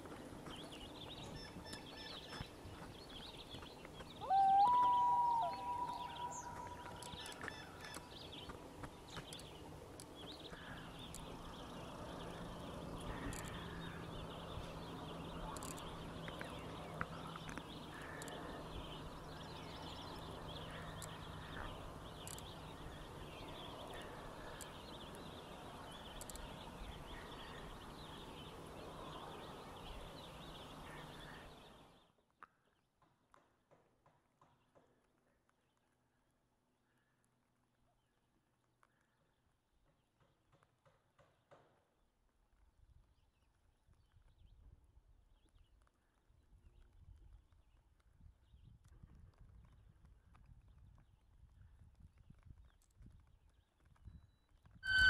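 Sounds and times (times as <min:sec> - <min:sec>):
steady outdoor hiss: 0:00.0 - 0:32.2
faint loon calls: 0:04.2 - 0:06.9.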